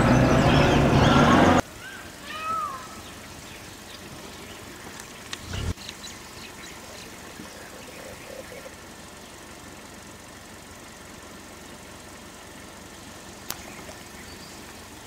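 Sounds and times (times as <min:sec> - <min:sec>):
high animal call: 0:00.0 - 0:05.7, 0:06.4 - 0:08.8
low rumble with clicks: 0:03.2 - 0:08.8.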